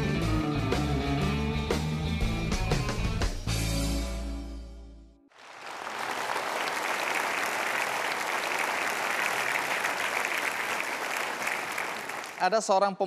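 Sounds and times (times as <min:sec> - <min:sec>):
studio audience applauding: 0:05.3 - 0:12.8.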